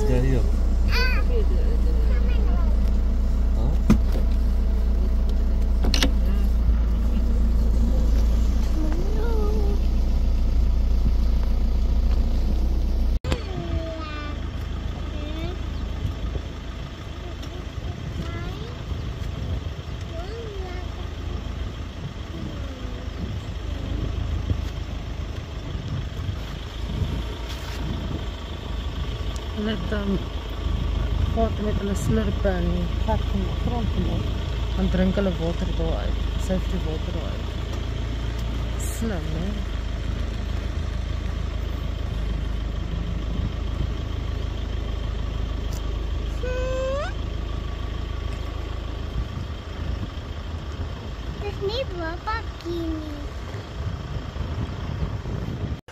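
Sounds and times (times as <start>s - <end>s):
vehicle engine idling: 0.0s - 55.9s.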